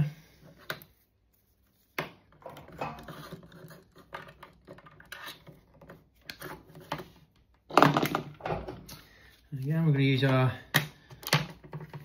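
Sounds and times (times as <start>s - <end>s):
cable clicks and scratches: 2.3s - 8.2s.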